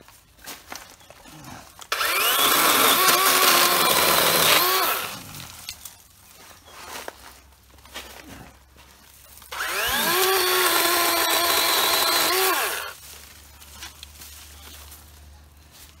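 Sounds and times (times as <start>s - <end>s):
chainsaw cutting a branch: 1.9s - 5.7s, 9.5s - 13.0s.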